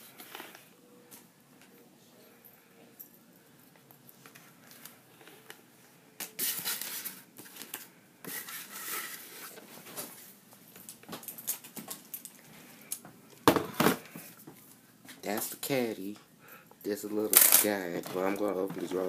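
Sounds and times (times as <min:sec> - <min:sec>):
plastic caddy rustling and scraping: 0:06.3 - 0:10.3.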